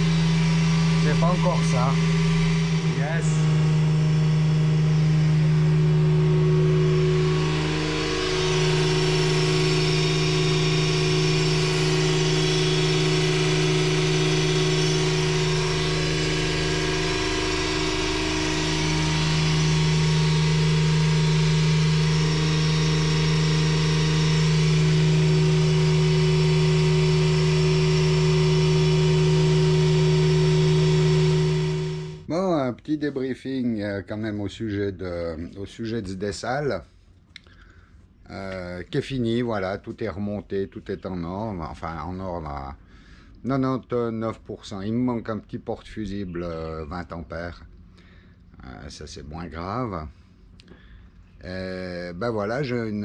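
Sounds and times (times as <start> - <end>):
pump hum: 0.0 - 32.3.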